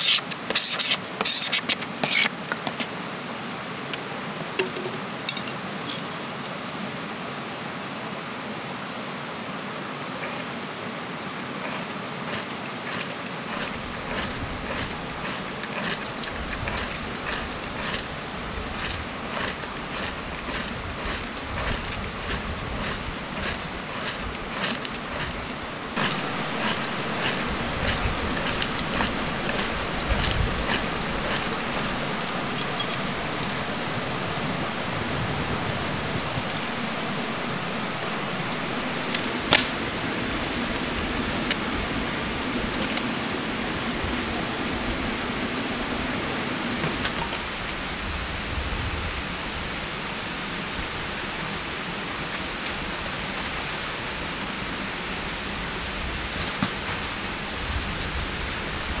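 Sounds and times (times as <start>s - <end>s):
steady rushing background: 12.3s - 47.0s
bird chirping: 25.4s - 39.4s.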